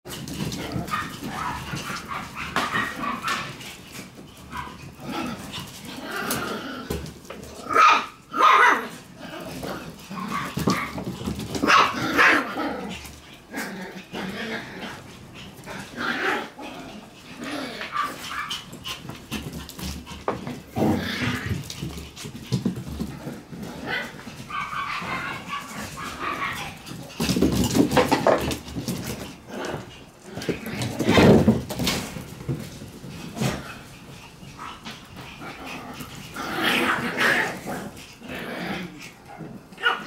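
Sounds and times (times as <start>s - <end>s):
paws scuffling on wooden floor: 0.1s - 7.8s, 16.7s - 38.3s
puppies barking and yipping: 0.4s - 6.4s, 14.5s - 22.8s, 23.8s - 29.8s.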